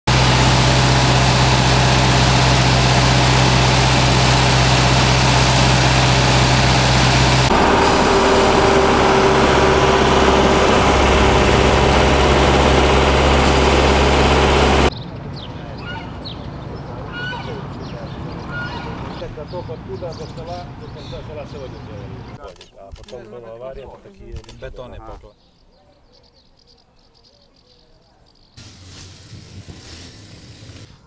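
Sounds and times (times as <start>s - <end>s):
loud rushing of blown air: 0.1s - 14.9s
truck engine hum: 0.1s - 14.9s, 28.6s - 31.0s.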